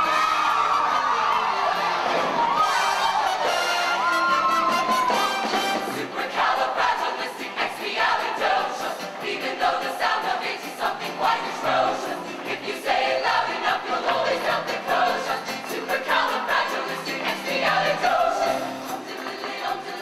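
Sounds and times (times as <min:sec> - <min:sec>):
choir singing: 0:01.1 - 0:20.0
instrumental accompaniment: 0:02.0 - 0:07.2.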